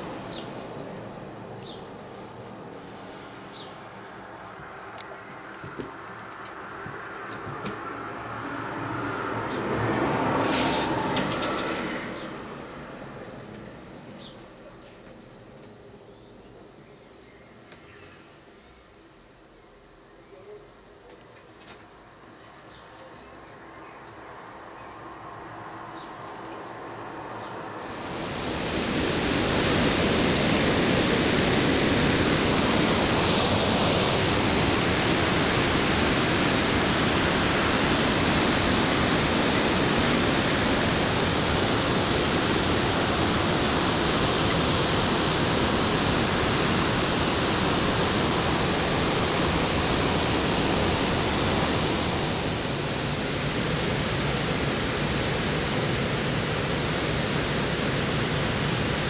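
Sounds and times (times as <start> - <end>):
loud rushing noise: 0.0 - 1.6, 7.8 - 13.5, 27.1 - 59.0.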